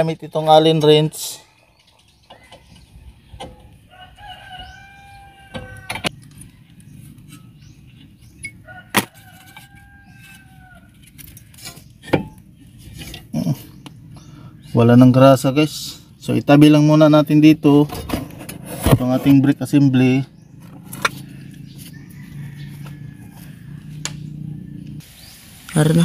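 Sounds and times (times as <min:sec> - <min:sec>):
rooster crowing: 0:03.7 - 0:07.0, 0:08.4 - 0:11.0, 0:21.2 - 0:25.0.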